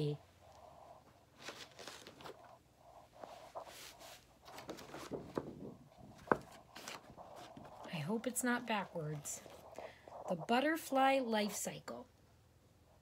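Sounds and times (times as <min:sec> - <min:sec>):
poster board rustling: 0:03.2 - 0:08.1.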